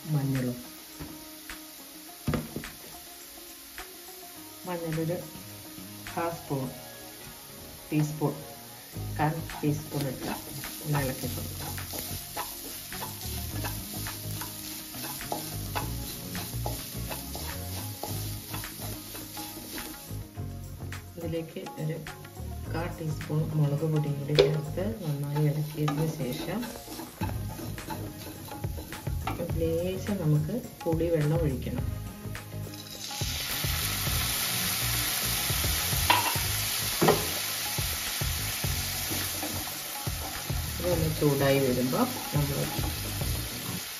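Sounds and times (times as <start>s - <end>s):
light sizzle: 0.0s - 43.9s
spatula scraping a frying pan: 9.3s - 20.2s, 23.4s - 30.2s.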